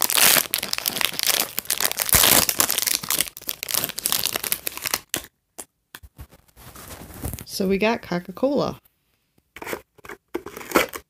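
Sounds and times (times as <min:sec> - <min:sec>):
foil packet crinkling: 0:00.0 - 0:05.2.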